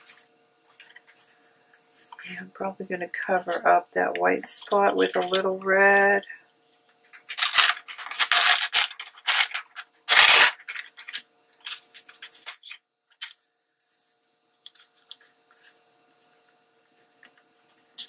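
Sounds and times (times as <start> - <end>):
paper rustling and crinkling: 0.0 - 6.3, 6.9 - 18.0
paper tearing: 7.2 - 12.8.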